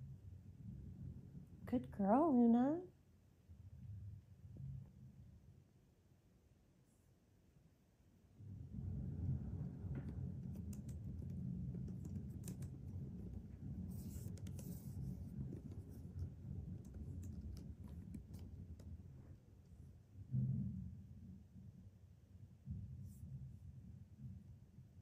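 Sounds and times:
cat exercise wheel rumbling: 0:08.4 - 0:21.4
light clicks and taps: 0:09.9 - 0:19.1.

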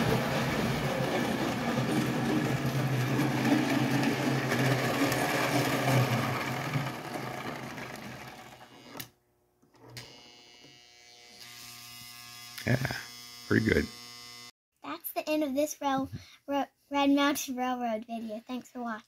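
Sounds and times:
toy train motor whirring: 0:00.0 - 0:09.1, 0:10.0 - 0:14.5.

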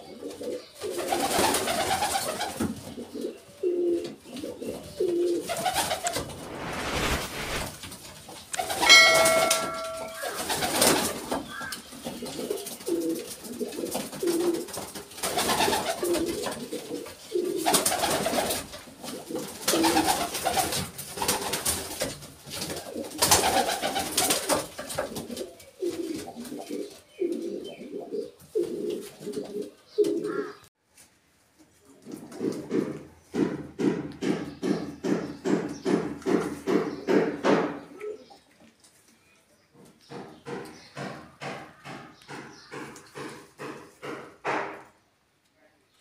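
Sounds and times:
pigeons cooing: 0:00.0 - 0:06.1, 0:08.6 - 0:21.4, 0:22.4 - 0:30.6
wings flapping: 0:00.9 - 0:02.6, 0:05.4 - 0:11.4, 0:12.3 - 0:25.3
short chime: 0:08.7 - 0:10.6.

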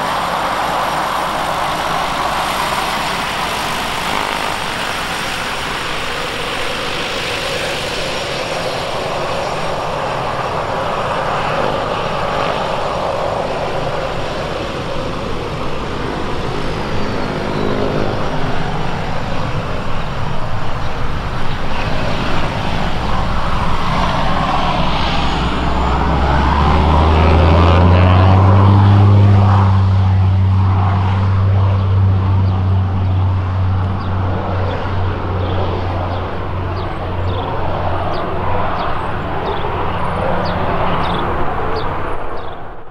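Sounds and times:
deep propeller drone: 0:00.0 - 0:42.9
turboprop whining hiss: 0:00.0 - 0:42.9.

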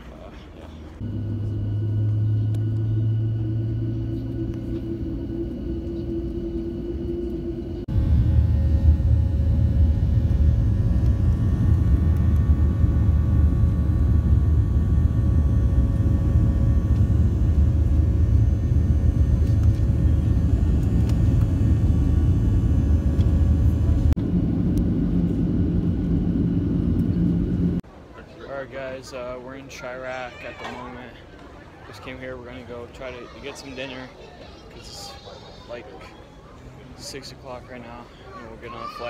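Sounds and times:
low drone: 0:00.9 - 0:27.8
jet engine rumble in cabin: 0:01.0 - 0:27.8.

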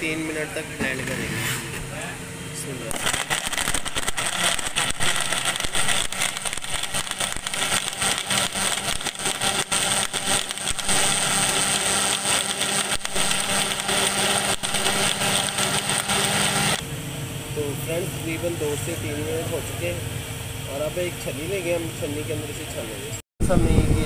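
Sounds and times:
blender crushing ice: 0:02.9 - 0:16.8.

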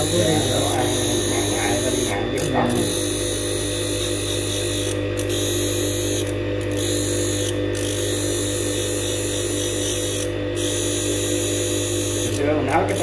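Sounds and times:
electric grinder humming: 0:00.0 - 0:13.0.

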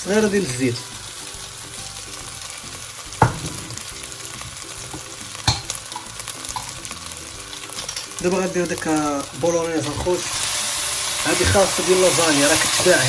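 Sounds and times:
minced meat sizzling in pot: 0:00.0 - 0:13.0
wooden spoon knocking on pot: 0:03.2 - 0:03.9, 0:04.9 - 0:06.8.

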